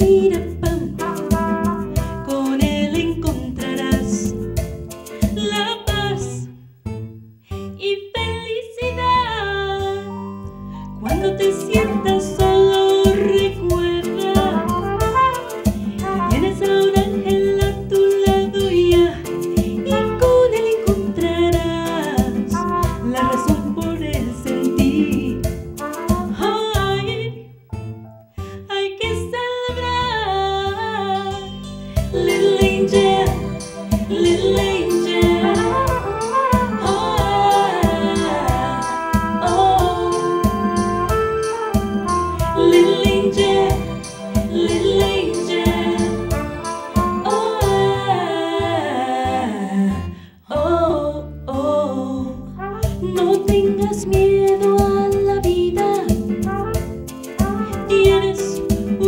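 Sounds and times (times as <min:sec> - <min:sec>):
woman singing into microphone: 0:00.0 - 0:01.4, 0:02.2 - 0:04.4, 0:05.3 - 0:06.5, 0:07.8 - 0:10.2, 0:11.0 - 0:15.3, 0:16.2 - 0:25.4, 0:26.3 - 0:27.4, 0:28.7 - 0:40.9, 0:42.5 - 0:56.6, 0:57.5 - 0:59.0
instrumental accompaniment: 0:00.0 - 0:07.8, 0:09.7 - 0:28.7, 0:30.6 - 0:48.6, 0:52.5 - 0:59.0
beat: 0:11.0 - 0:27.1, 0:32.0 - 0:48.2.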